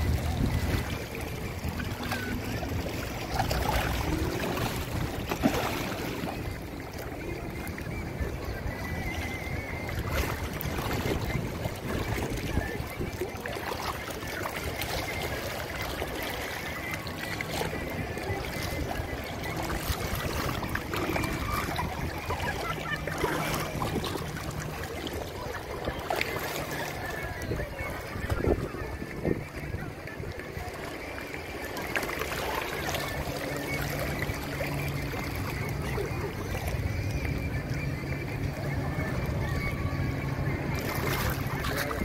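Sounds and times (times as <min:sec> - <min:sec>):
wind on microphone: 0:00.0 - 0:31.6
faint voices: 0:00.0 - 0:42.0
water lapping: 0:00.0 - 0:42.0.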